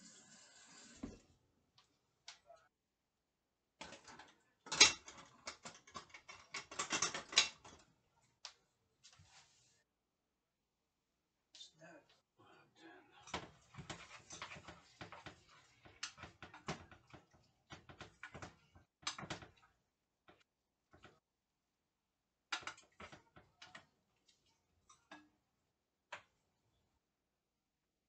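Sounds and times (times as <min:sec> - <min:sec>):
kitchen utensils clattering: 0:03.8 - 0:07.9, 0:13.3 - 0:19.6.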